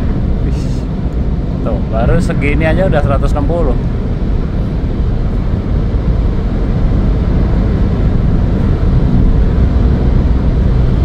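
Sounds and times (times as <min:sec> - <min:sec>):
car engine cruising: 0:00.0 - 0:11.0
road and wind noise: 0:00.0 - 0:11.0.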